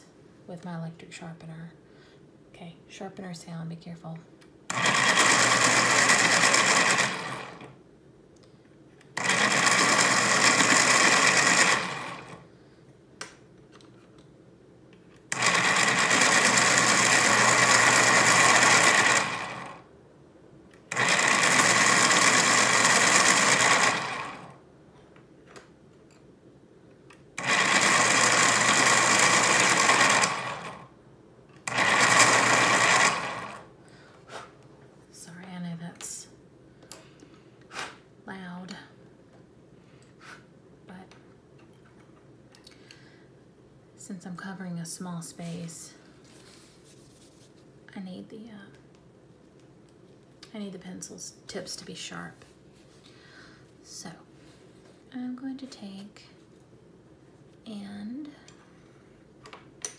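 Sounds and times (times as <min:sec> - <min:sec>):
electric pencil sharpener whirring: 0:04.7 - 0:07.8, 0:09.2 - 0:12.4, 0:15.3 - 0:19.9, 0:20.9 - 0:24.6, 0:27.4 - 0:30.9, 0:31.6 - 0:33.7.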